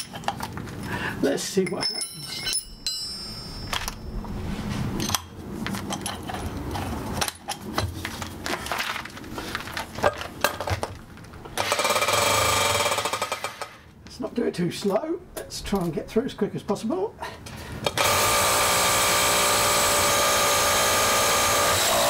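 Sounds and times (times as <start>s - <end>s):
hammer drill running: 11.6s - 13.7s, 18.0s - 22.0s.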